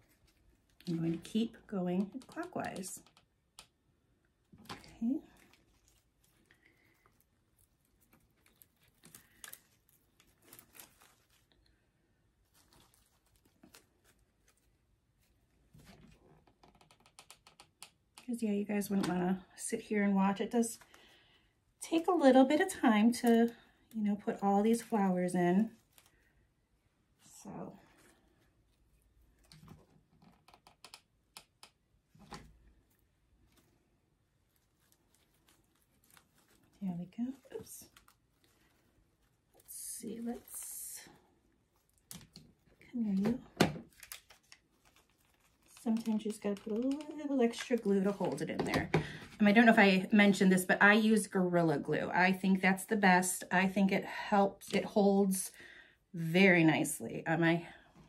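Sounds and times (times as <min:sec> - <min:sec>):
rustling of plastic leaves: 0:04.6 - 0:16.1, 0:32.1 - 0:48.5.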